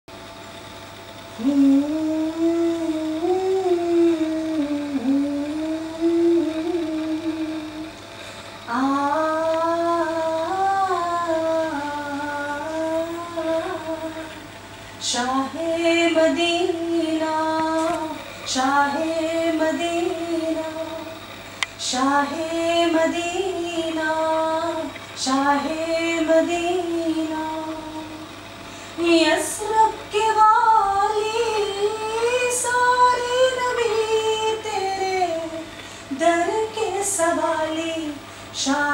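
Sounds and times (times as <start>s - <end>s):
woman singing devotional hymn: 1.4s - 7.9s, 8.7s - 21.2s, 21.8s - 28.3s, 29.0s - 38.9s.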